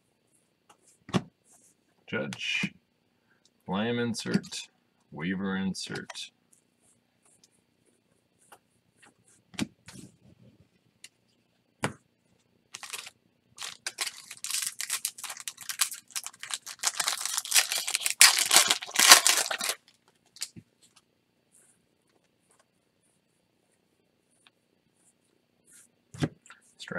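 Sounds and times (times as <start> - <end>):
foil wrapper crinkling and tearing: 12.8 - 20.5.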